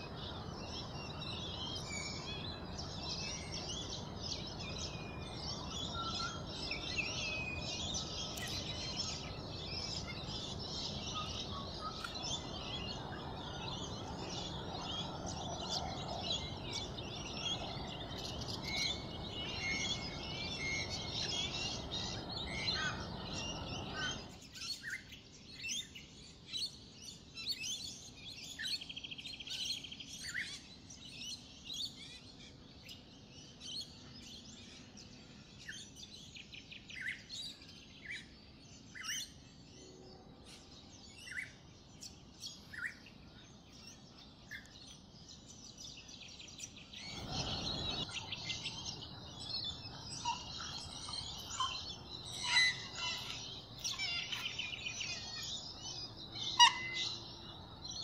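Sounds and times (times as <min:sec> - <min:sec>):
small birds chirping: 0:00.0 - 0:58.0
whistled bird notes: 0:45.8 - 0:58.0.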